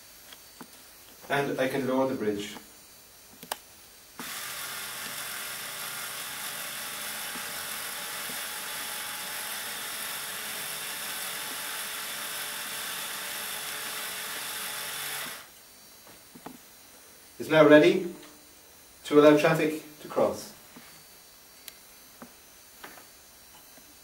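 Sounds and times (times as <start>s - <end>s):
electric screwdriver motor whirring: 4.2s - 15.5s.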